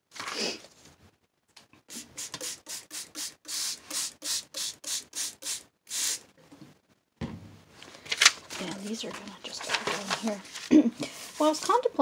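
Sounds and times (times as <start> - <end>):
spray bottle squirting: 1.9 - 6.3.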